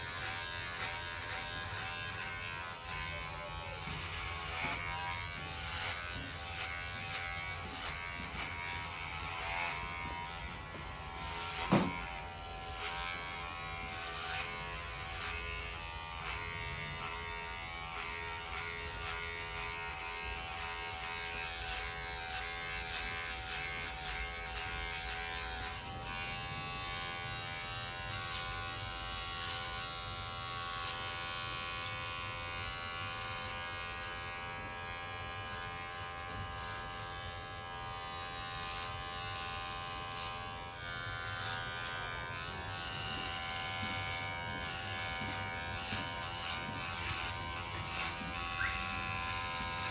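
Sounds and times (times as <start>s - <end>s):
hair clipper buzzing: 0.0s - 49.9s
sharp knock: 11.7s - 12.0s.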